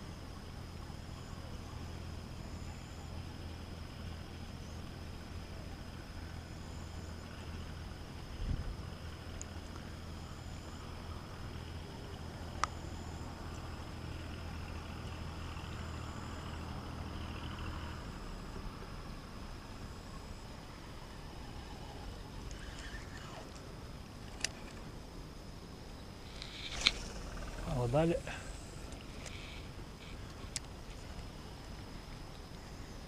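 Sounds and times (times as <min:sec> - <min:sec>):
distant engine humming: 0:25.9 - 0:33.0.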